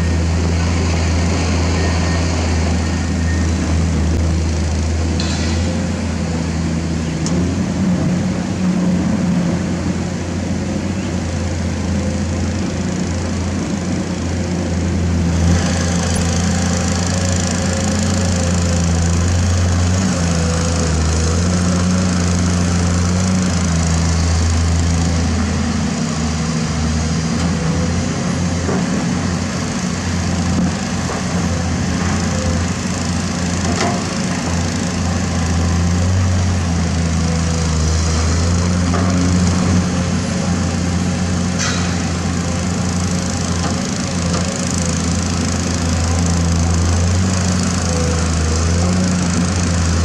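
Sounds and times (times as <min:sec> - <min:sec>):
excavator diesel engine running: 0:00.0 - 0:50.0.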